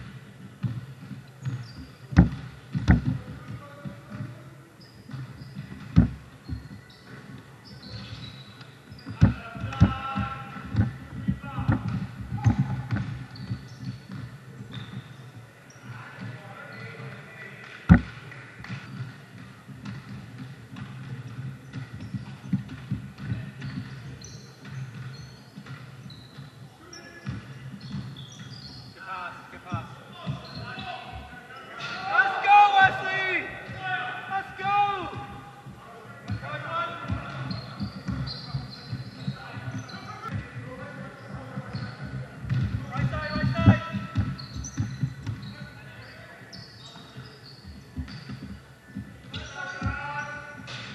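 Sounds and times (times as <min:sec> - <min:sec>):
basketball bouncing on gym floor: 0:00.0 - 0:15.2, 0:17.8 - 0:29.0, 0:35.0 - 0:50.9
shoe squeaks: 0:01.4 - 0:03.2, 0:04.1 - 0:15.9, 0:16.6 - 0:17.1, 0:18.7 - 0:19.2, 0:21.7 - 0:22.6, 0:23.2 - 0:32.1, 0:36.9 - 0:50.9.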